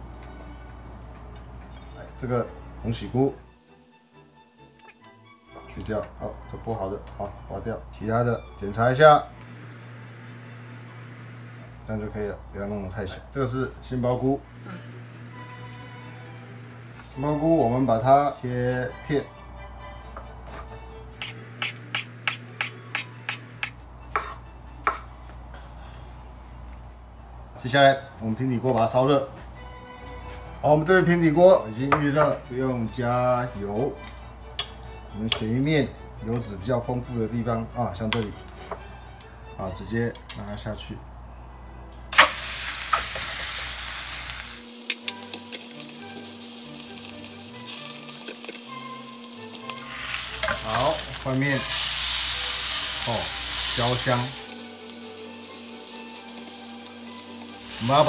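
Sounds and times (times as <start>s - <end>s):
knife tapping cutting board: 21.2s - 25.1s
meat sizzling in a frying pan: 42.1s - 58.0s.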